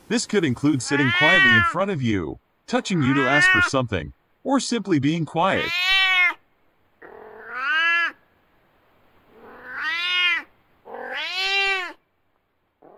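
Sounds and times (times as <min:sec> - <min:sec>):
cat meowing: 0:00.8 - 0:01.8, 0:03.0 - 0:03.7, 0:05.5 - 0:06.4, 0:07.0 - 0:08.2, 0:09.3 - 0:12.0.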